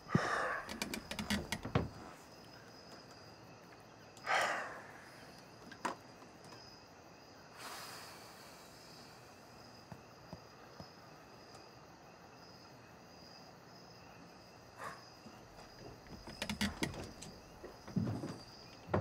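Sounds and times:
crickets chirring: 0.0s - 19.0s
sharp knocks and clatters: 0.2s - 2.1s, 15.6s - 19.0s.

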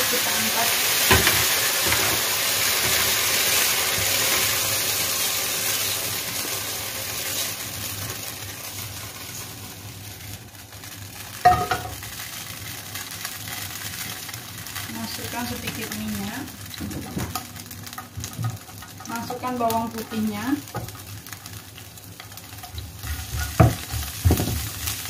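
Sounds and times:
hot oil sizzling in a wok: 0.0s - 25.0s
pan knocking on a burner: 1.1s - 2.2s, 11.4s - 12.0s, 23.1s - 24.7s.

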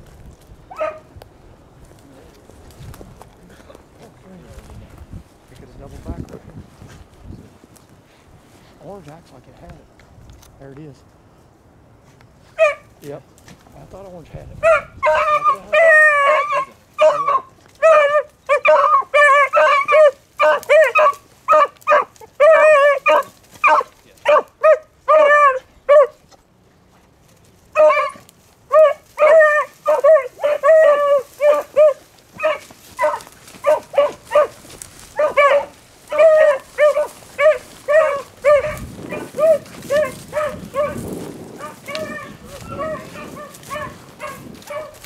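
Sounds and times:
dogs barking high: 0.7s - 1.2s, 12.5s - 12.9s, 14.6s - 26.3s, 27.7s - 45.0s.

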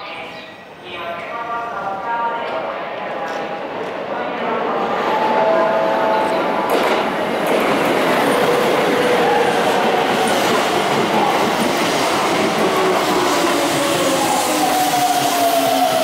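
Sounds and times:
train wheels rumbling on rail: 5.0s - 16.0s.

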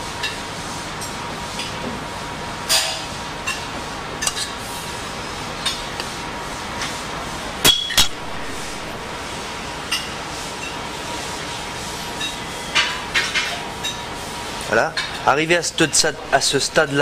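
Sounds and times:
steady kitchen hiss: 0.0s - 17.0s.

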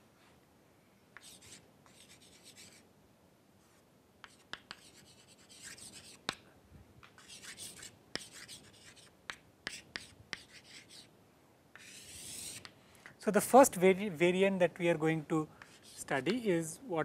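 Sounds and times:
chalk scraping on chalkboard: 1.2s - 2.8s, 4.2s - 6.4s, 7.2s - 11.1s, 11.8s - 12.7s, 15.6s - 16.2s
chalk tapping on board: 1.2s - 2.8s, 4.2s - 6.4s, 7.0s - 11.1s, 11.8s - 12.8s, 15.6s - 16.4s.

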